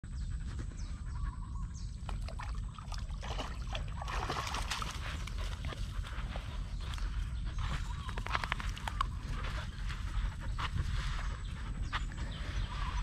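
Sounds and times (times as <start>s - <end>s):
steady low rumble: 0.0s - 13.0s
dog wading in water: 2.0s - 7.0s.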